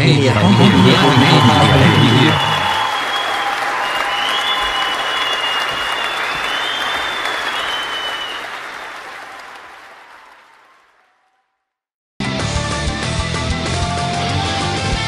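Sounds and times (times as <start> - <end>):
crowd applause: 0.0 - 11.5
long high whistles: 0.6 - 8.8.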